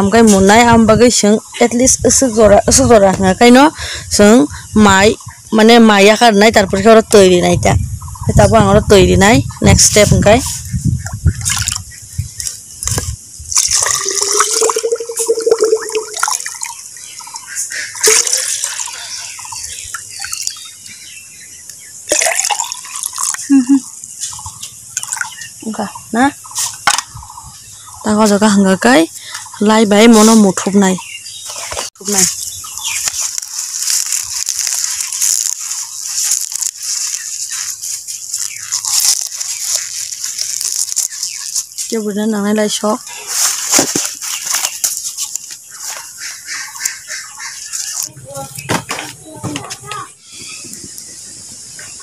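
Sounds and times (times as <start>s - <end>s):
birds calling: 0.0s - 52.0s
banana leaves rustling: 9.8s - 16.4s, 29.2s - 52.0s
water pouring into bamboo tube: 11.4s - 11.8s, 13.5s - 20.7s, 22.0s - 23.5s, 25.0s - 25.4s, 32.8s - 37.7s, 38.3s - 41.8s.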